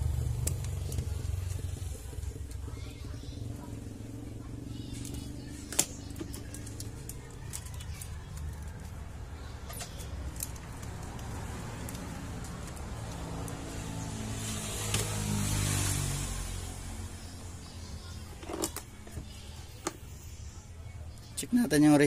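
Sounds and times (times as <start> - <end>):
vehicle engine passing: 0.0 - 19.7.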